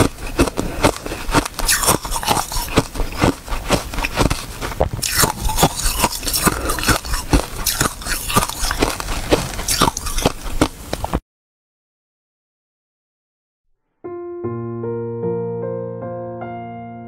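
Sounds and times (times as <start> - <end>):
crunching ice: 0.0 - 11.2.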